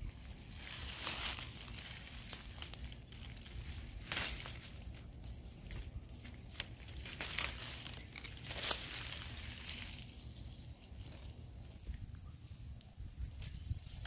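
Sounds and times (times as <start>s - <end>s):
leaves and stems rustling: 0.0s - 14.0s.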